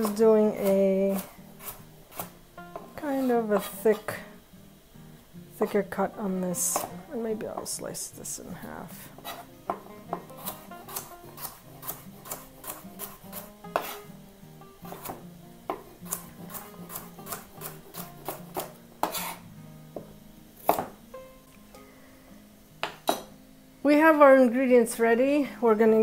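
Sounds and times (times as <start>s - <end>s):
knife chopping on wooden board: 6.7s - 6.9s, 9.2s - 14.0s, 14.9s - 19.4s, 20.0s - 21.0s.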